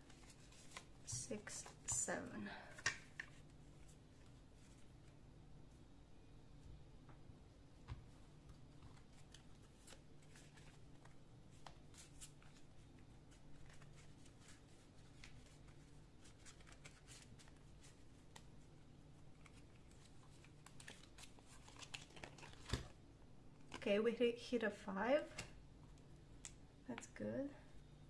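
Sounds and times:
cards being shuffled: 0.0s - 2.1s, 8.5s - 12.7s, 13.3s - 18.6s, 19.3s - 22.9s
low room hum: 0.0s - 28.0s.

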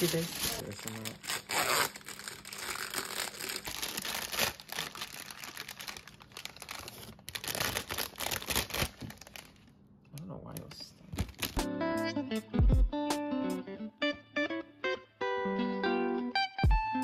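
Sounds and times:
plastic package rustling and crackling: 0.0s - 9.8s, 10.5s - 11.6s.

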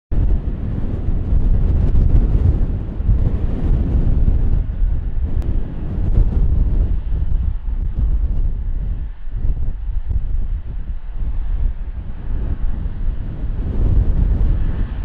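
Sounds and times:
jet engines rumbling: 0.1s - 15.0s
wind buffeting microphone: 0.1s - 15.0s.

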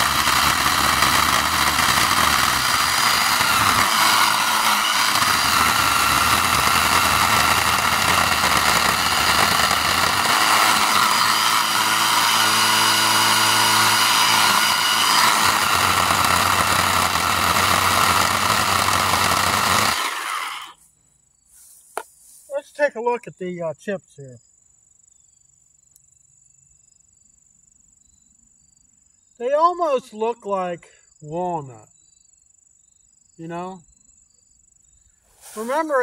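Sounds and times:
chain rasping through wood: 0.0s - 20.7s
electric chainsaw motor whining: 0.0s - 20.8s, 35.6s - 36.0s.

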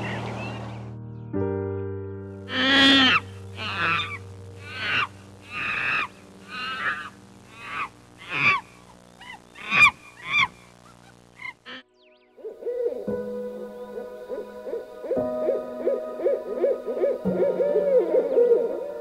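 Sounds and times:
animal calling: 2.5s - 13.2s
steady low background tone: 3.2s - 19.0s.

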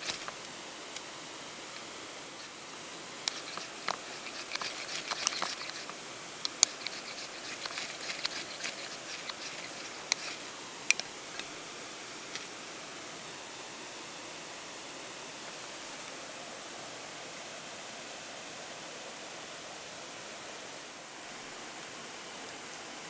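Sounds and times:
river water hiss: 0.0s - 23.0s
knife scraping fire-starting rod: 3.2s - 11.1s.

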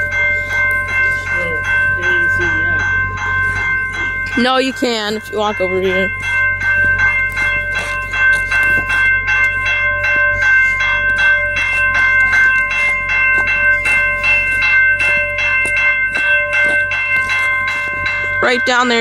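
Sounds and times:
crossing warning bell ringing: 0.0s - 19.0s.

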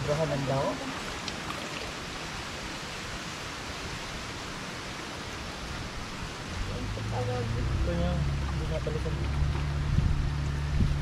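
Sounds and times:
stream water flowing: 0.0s - 11.0s.

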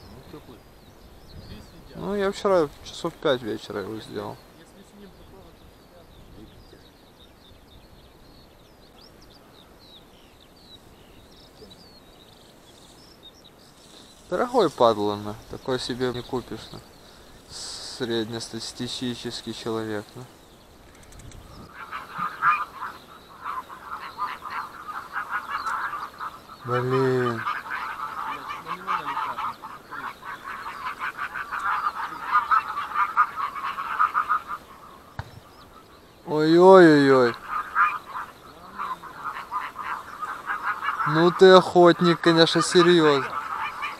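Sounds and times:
songbirds twittering: 0.0s - 43.9s
geese honking: 13.9s - 20.3s, 21.6s - 43.9s.

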